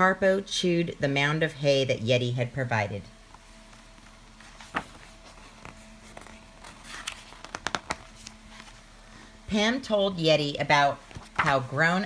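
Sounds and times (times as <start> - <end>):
book page turning: 3.6 - 8.8, 11.0 - 11.7.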